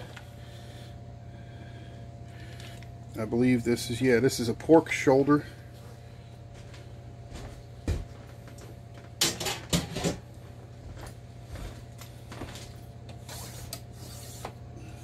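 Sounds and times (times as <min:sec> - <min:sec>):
kitchen knocks and clicks: 0:09.2 - 0:10.2.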